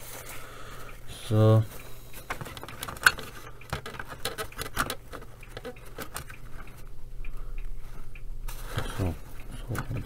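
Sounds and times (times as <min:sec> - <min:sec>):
plastic clicks and rattles: 0:02.3 - 0:06.8.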